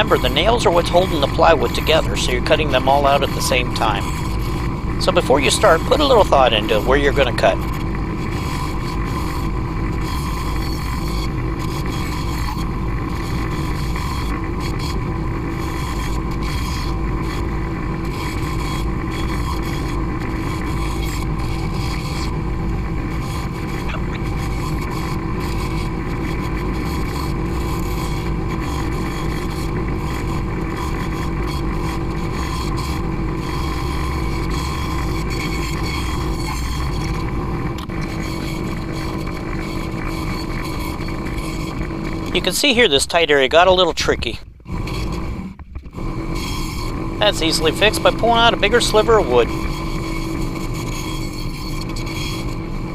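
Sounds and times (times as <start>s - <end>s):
bandsaw cutting plywood: 0.0s - 7.7s, 8.3s - 42.8s.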